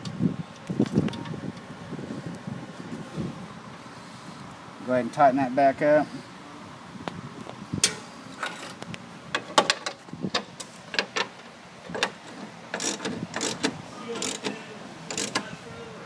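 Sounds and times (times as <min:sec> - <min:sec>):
socket ratchet clicking: 0:12.0 - 0:14.5, 0:15.1 - 0:15.4.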